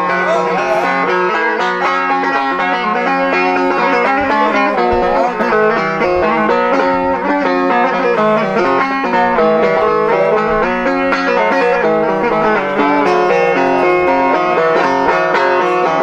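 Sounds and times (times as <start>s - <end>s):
plucked lute melody: 0.0s - 16.0s.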